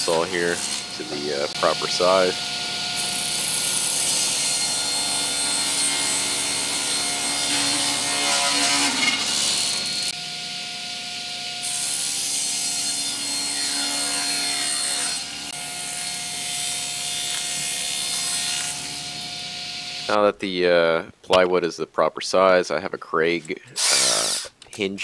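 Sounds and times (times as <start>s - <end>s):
saw blade cutting plywood: 0.0s - 10.2s, 11.6s - 20.2s, 23.8s - 24.6s
table saw motor whine: 0.0s - 20.2s.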